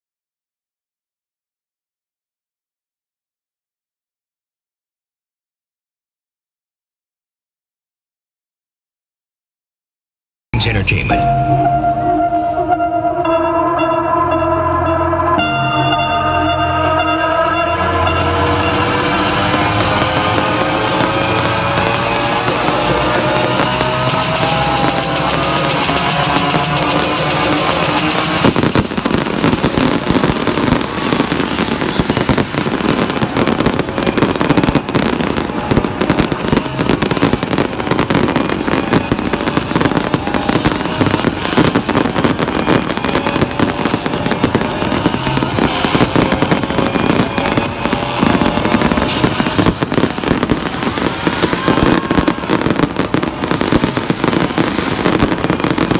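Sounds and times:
music: 10.6 - 55.9
fireworks crackling and banging: 15.4 - 55.9.

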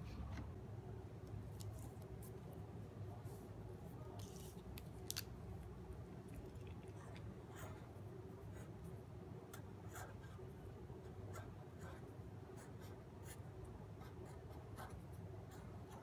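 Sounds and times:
low steady hum: 0.0 - 16.0
marker scratching on paper: 9.5 - 10.5, 11.3 - 13.4, 14.0 - 16.0.

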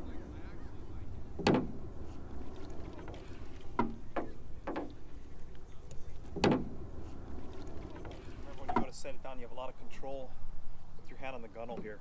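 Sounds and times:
low steady rumble: 0.0 - 11.1
hollow canoe knocks: 1.4 - 1.9, 2.9 - 5.0, 6.3 - 6.8, 7.8 - 9.0.

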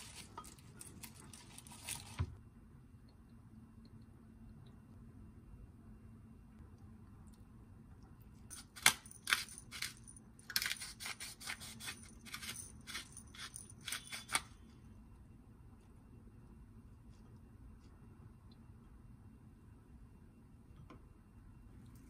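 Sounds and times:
spice grinder grinding: 8.5 - 14.5.

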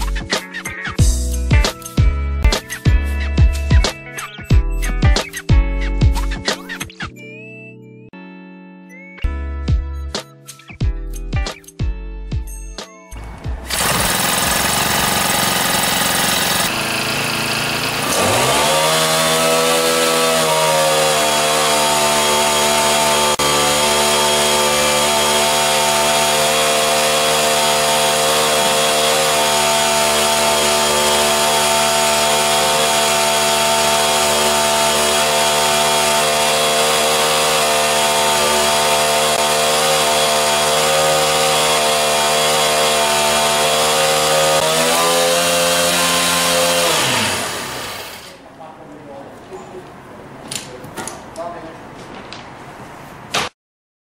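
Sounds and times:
small petrol engine revving: 13.2 - 48.4
drill cutting through steel: 13.6 - 48.4.

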